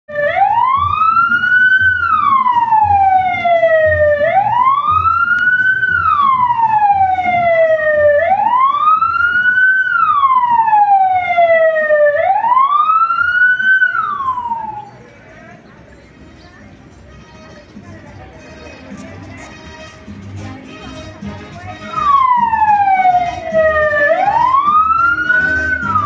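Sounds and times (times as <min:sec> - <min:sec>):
police siren wailing: 0:00.1 - 0:15.0, 0:22.0 - 0:26.0.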